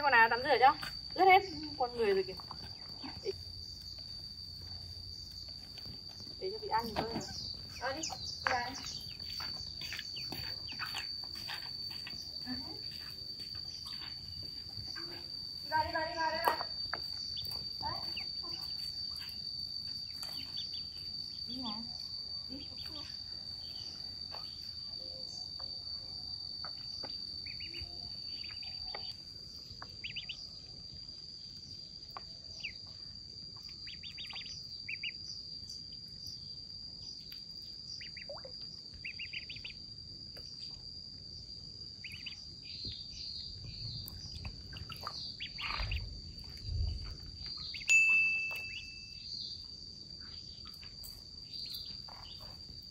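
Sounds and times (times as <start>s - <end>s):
insect trill: 0.0s - 52.9s
ducklings peeping: 5.8s - 12.4s, 17.1s - 19.2s, 20.0s - 21.0s, 26.6s - 29.2s, 29.8s - 30.4s, 32.6s - 32.8s, 33.6s - 35.2s, 38.0s - 39.8s, 42.0s - 42.6s, 43.5s - 46.6s, 47.6s - 47.9s, 48.5s - 48.8s.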